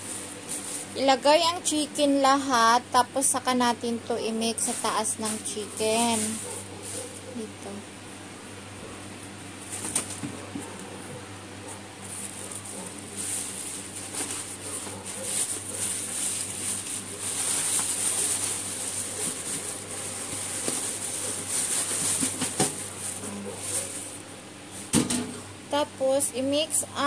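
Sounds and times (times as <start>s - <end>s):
plastic bag rustling and crinkling: 0.0s - 1.7s, 4.2s - 7.5s, 12.0s - 24.9s.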